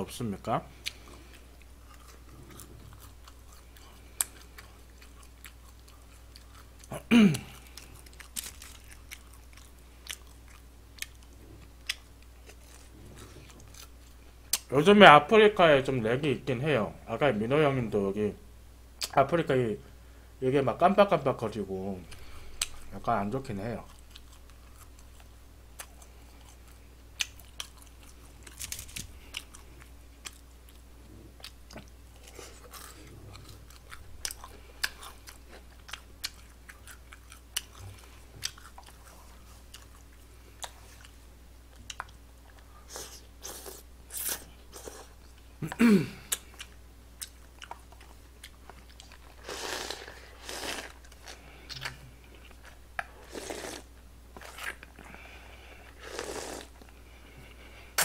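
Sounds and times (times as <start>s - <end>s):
chewing and slurping noodles: 46.5s - 58.0s.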